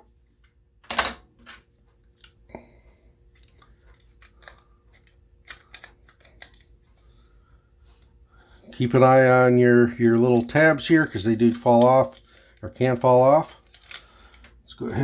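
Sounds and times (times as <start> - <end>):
pistol parts clicking: 13.6 - 14.6.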